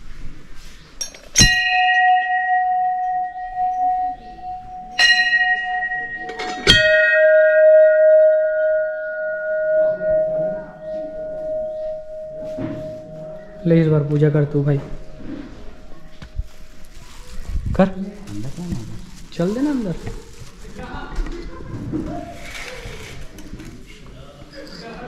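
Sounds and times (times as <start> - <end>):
temple bells ringing: 1.4 - 16.8.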